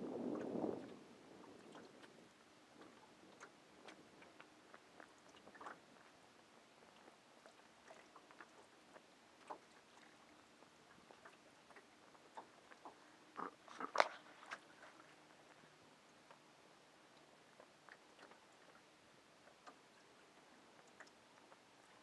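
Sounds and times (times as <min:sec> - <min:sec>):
faint small clicks and ticks: 0:01.7 - 0:16.5, 0:17.1 - 0:22.0.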